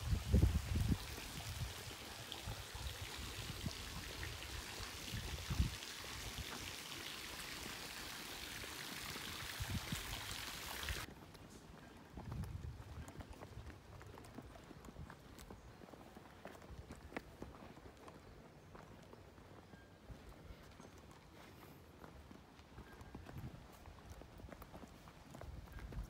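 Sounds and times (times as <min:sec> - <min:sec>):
running water rushing: 0:00.0 - 0:11.1.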